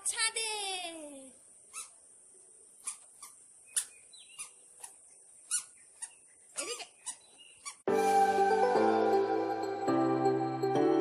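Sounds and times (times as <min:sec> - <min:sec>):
short high squeaks: 0:01.7 - 0:02.0, 0:02.8 - 0:07.9.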